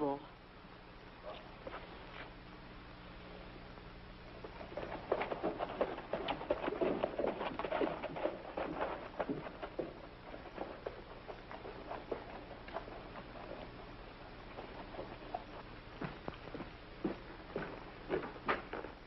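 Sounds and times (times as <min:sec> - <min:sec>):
horse hooves clopping: 0:04.3 - 0:19.0.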